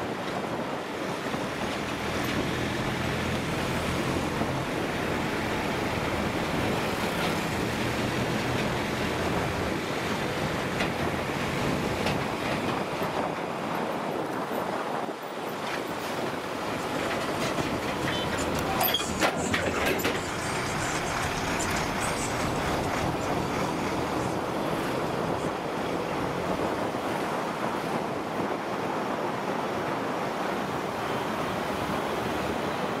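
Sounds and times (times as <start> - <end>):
wind and road noise on motorbike: 0.0 - 33.0
sharp knocks and rattles: 16.7 - 24.4.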